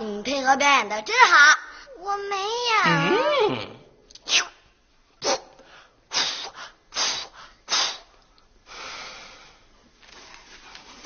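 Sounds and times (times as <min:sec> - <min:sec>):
sharp breathy blasts: 0:05.2 - 0:09.6.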